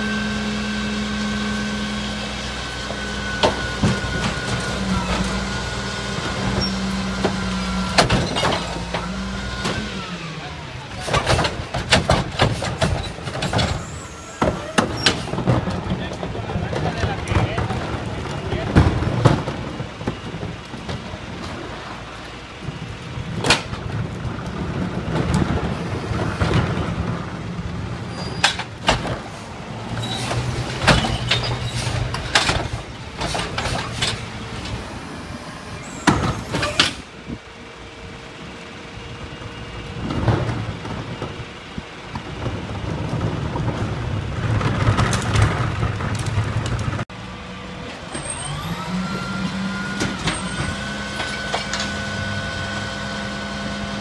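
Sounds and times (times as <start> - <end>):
diesel truck engine running: 0.0 - 54.0
hydraulics working: 0.0 - 54.0
metal clanks and bangs: 6.2 - 9.9, 10.9 - 21.6, 23.4 - 34.9.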